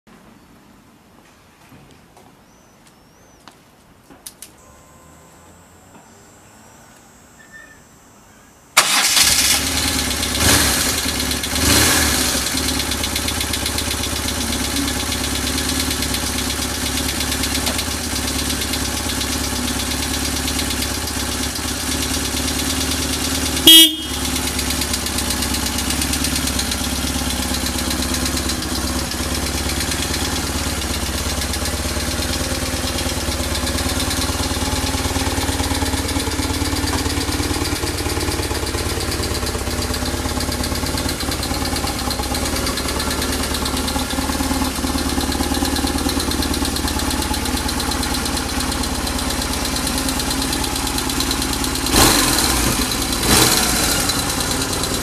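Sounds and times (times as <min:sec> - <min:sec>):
loud engine burst: 0:08.8 - 0:11.0
motorcycle engine revving and idling: 0:08.9 - 0:55.0.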